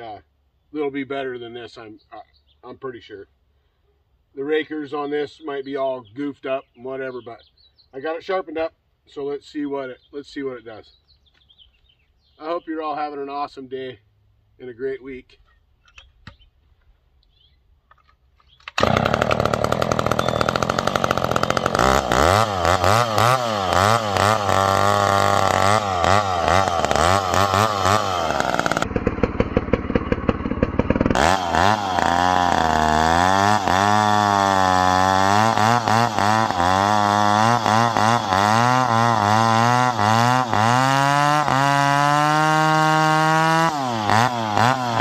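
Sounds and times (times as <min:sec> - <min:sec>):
chainsaw cutting into log: 0:18.7 - 0:45.0
chainsaw revving: 0:18.7 - 0:45.0.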